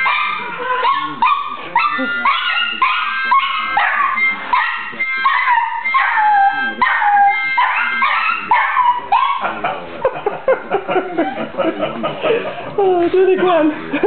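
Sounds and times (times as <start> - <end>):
small dog howling and yipping: 0.0 - 9.4.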